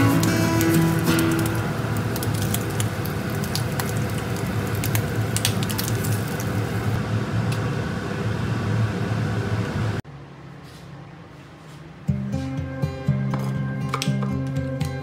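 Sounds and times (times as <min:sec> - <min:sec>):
bacon sizzling in a frying pan: 0:00.0 - 0:07.0
faint hum: 0:00.0 - 0:12.2.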